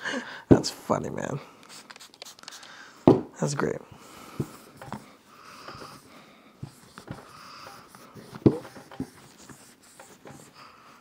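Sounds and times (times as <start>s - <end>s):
brush scrubbing metal: 6.7s - 10.6s.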